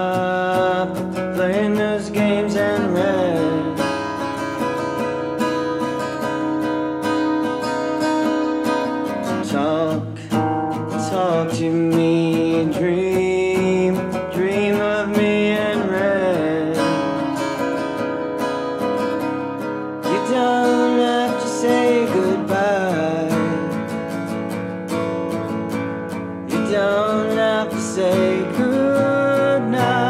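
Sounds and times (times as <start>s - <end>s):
person singing: 0.0s - 4.6s, 8.8s - 18.3s, 20.0s - 24.1s, 26.4s - 30.0s
strummed acoustic guitar: 0.0s - 30.0s.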